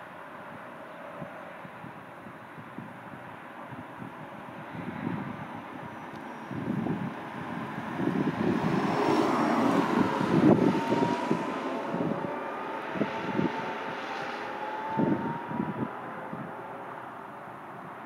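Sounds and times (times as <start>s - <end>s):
wind buffeting microphone: 0.4s - 18.0s
sports car passing and accelerating: 4.6s - 18.0s.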